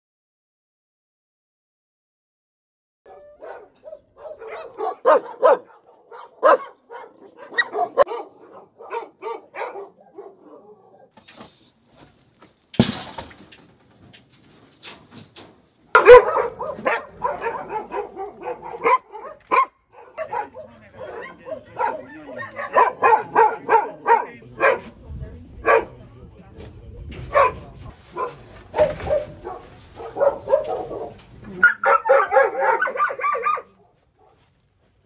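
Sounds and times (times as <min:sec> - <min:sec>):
dogs barking: 0:03.1 - 0:11.2, 0:16.0 - 0:25.0, 0:25.6 - 0:26.0, 0:27.2 - 0:34.4.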